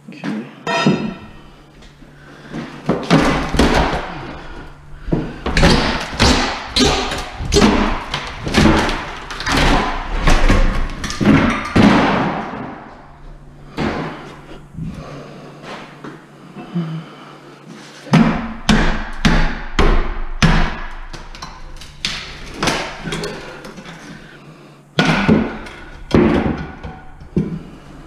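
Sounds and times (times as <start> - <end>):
heavy bangs and thuds: 2.4 - 13.0.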